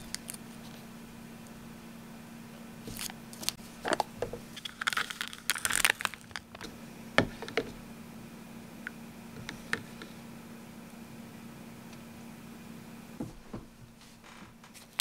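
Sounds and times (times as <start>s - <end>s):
lid peeling with crinkling tear: 2.9s - 6.6s.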